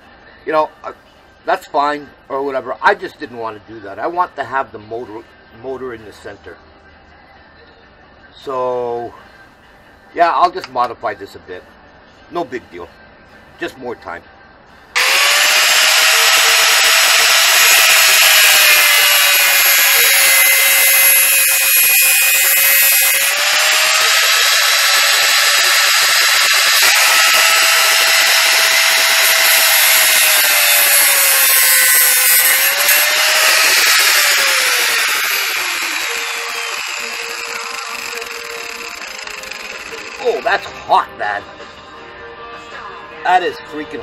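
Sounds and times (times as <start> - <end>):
angle grinder cutting metal: 15.0 - 40.7.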